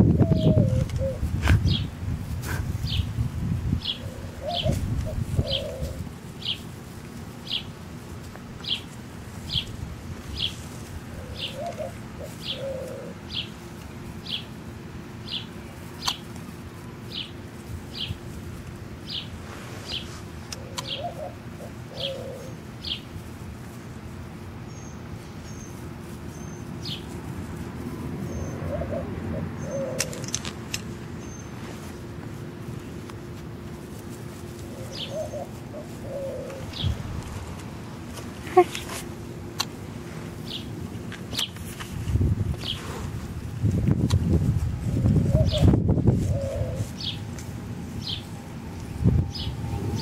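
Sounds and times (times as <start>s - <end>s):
dove cooing: 0.0s - 1.9s, 3.8s - 6.7s, 10.4s - 14.5s, 19.9s - 23.1s, 28.0s - 31.5s, 34.1s - 40.7s, 44.8s - 47.3s, 48.0s - 50.0s
bird chirping: 49.2s - 50.0s.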